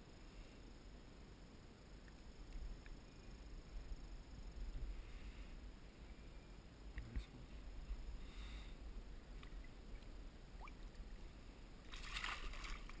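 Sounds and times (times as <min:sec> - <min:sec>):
steady low rumble: 0:00.0 - 0:13.0
fish splashing in water: 0:11.9 - 0:13.0.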